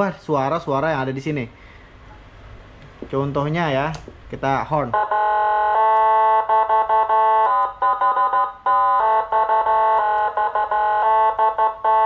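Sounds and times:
electronic siren horn blasts: 0:04.9 - 0:12.0.

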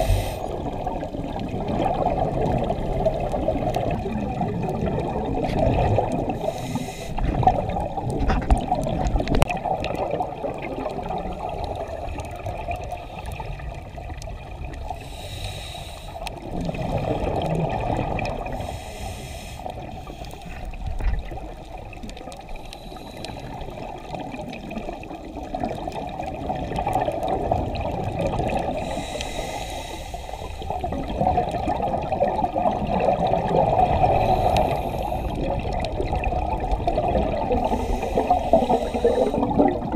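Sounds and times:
regulator hissing on inhales: 0:00.0 - 0:00.6, 0:06.4 - 0:07.3, 0:14.9 - 0:16.4, 0:18.5 - 0:20.6, 0:22.5 - 0:23.8, 0:28.8 - 0:30.8, 0:34.1 - 0:35.4, 0:37.6 - 0:39.8
exhaled air bubbling underwater: 0:00.0 - 0:39.9.

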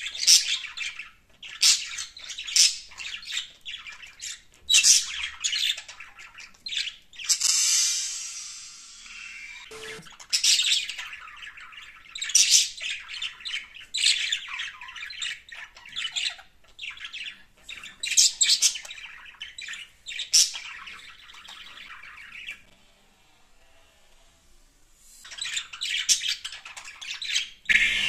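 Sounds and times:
budgerigars chattering and squawking: 0:25.3 - 0:28.0.

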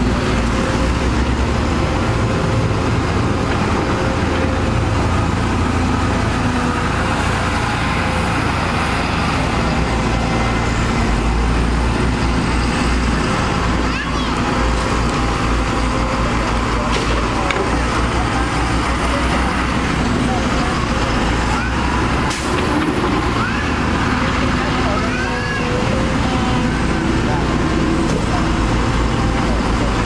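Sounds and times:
excavator diesel engine rumbling: 0:00.0 - 0:30.0
excavator digging dirt: 0:00.0 - 0:30.0.

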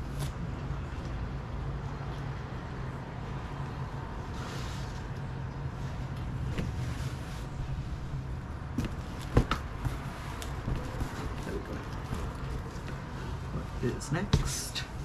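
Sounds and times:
steady low hum: 0:00.0 - 0:15.0
fabric rustling: 0:05.7 - 0:15.0.

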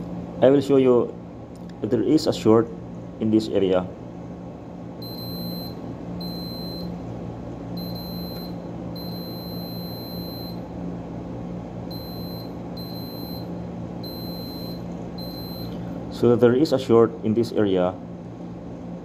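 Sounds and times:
steady low hum: 0:00.0 - 0:19.0
multimeter continuity beeps: 0:05.0 - 0:07.0, 0:07.8 - 0:10.7, 0:11.9 - 0:15.8.

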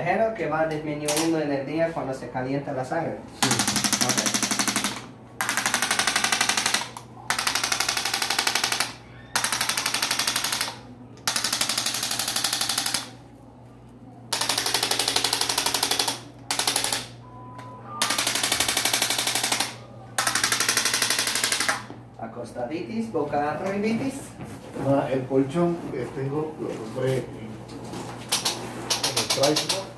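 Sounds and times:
electric instrument tapping rapidly: 0:03.4 - 0:04.9, 0:28.4 - 0:29.9
short beeps: 0:17.2 - 0:18.0.

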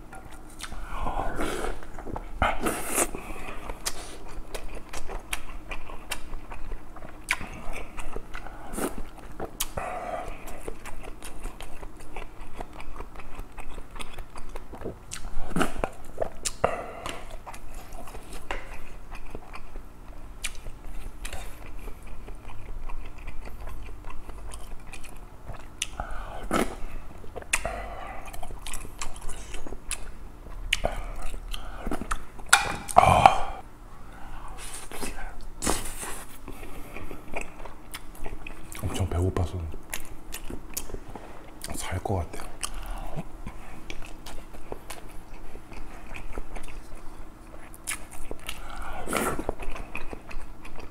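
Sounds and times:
close chewing mouth sounds: 0:00.0 - 0:33.6, 0:34.2 - 0:50.9.

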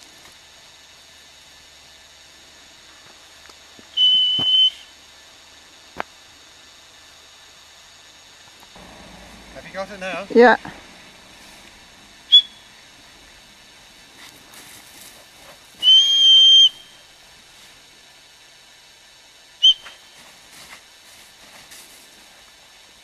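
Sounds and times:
dog whistle blast: 0:04.0 - 0:04.9, 0:12.3 - 0:12.7, 0:15.8 - 0:17.0, 0:19.6 - 0:20.0
short whistle pip: 0:04.0 - 0:04.9, 0:12.3 - 0:12.7, 0:15.8 - 0:17.1, 0:19.6 - 0:20.2.

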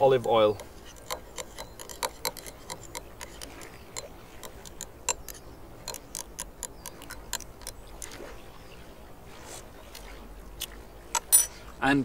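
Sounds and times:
utensil ticking against glass bowl: 0:00.0 - 0:08.2.

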